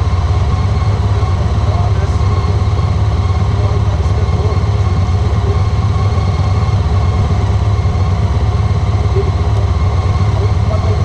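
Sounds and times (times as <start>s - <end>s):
motorcycle engine low throb: 0.0s - 11.0s.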